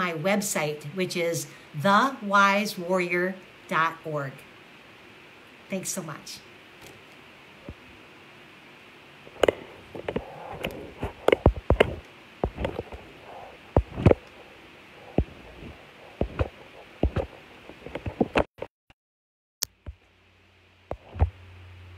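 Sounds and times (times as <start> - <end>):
phone handling knocks and rubbing: 9.3 - 13.1, 15.2 - 18.5.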